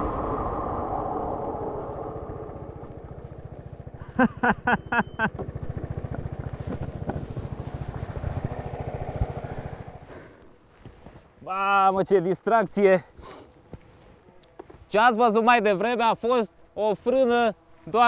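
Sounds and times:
scooter engine running: 2.7s - 10.2s.

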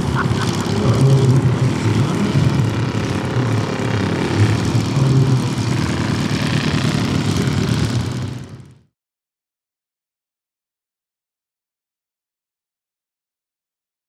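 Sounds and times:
model plane engine idling: 0.0s - 8.8s.

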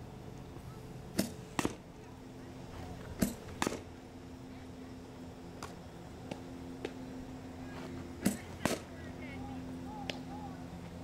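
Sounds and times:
steady low hum: 0.0s - 11.0s
bat striking softball: 1.1s - 1.9s, 3.2s - 3.9s, 8.2s - 8.9s.

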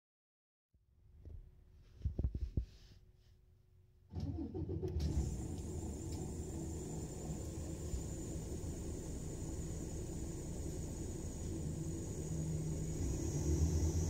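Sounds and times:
bus diesel engine rumble: 4.2s - 14.0s.

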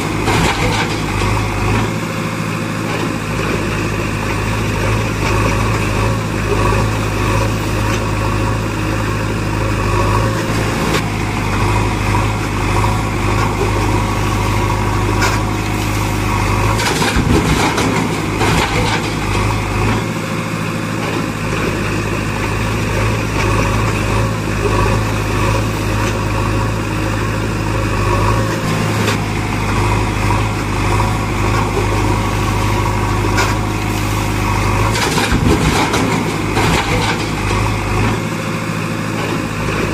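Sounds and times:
heavy diesel engine running: 0.0s - 39.9s.

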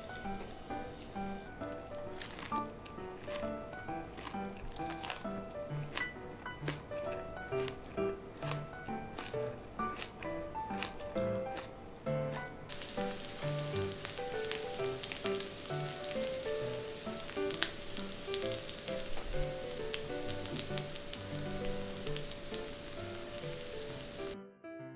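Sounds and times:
light background music: 0.0s - 24.4s
meat sizzling on grill pan: 12.7s - 24.4s.

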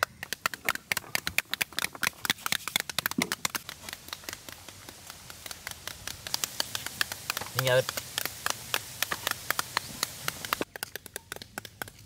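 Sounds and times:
seeds pattering into metal basins: 0.0s - 12.0s.

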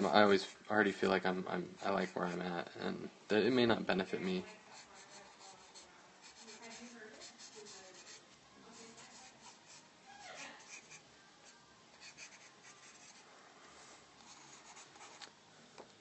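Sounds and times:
pencil scratching on paper: 4.3s - 11.0s, 12.0s - 13.2s, 13.8s - 15.3s.

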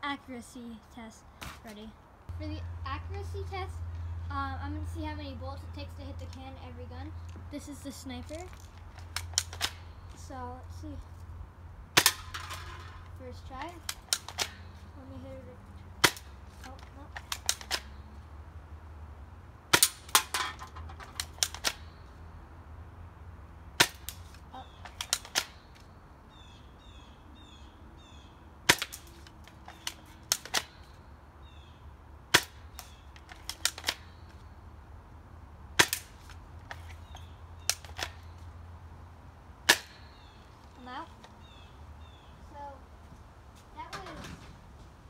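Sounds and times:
birds chirping: 20.8s - 43.1s.

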